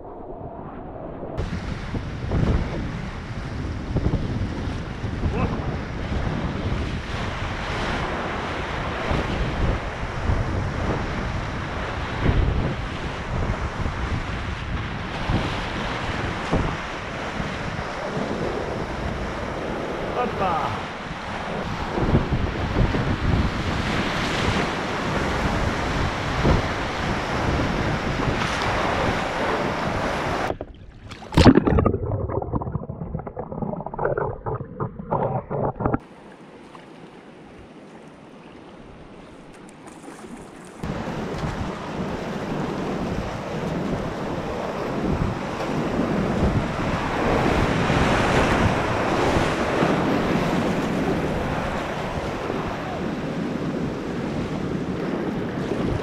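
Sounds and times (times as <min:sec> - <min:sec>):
muffled water sloshing: 0:30.4 - 0:37.2.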